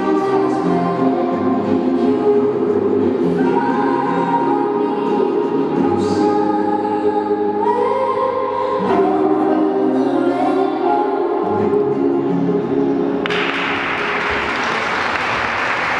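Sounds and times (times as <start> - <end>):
choir music over loudspeaker: 0.0 - 13.4
applause: 13.2 - 15.9.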